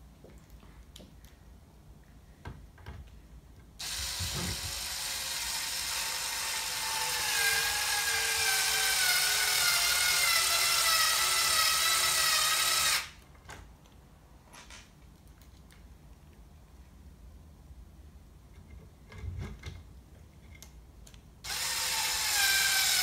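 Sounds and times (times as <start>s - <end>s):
electric screwdriver whining: 3.8s - 13.1s, 21.5s - 23.0s.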